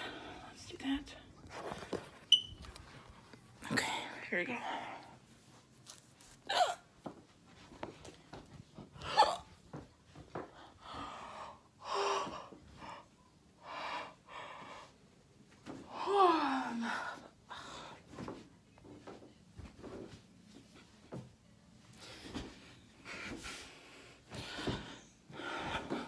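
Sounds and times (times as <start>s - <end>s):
person breathing heavily: 23.0s - 26.0s.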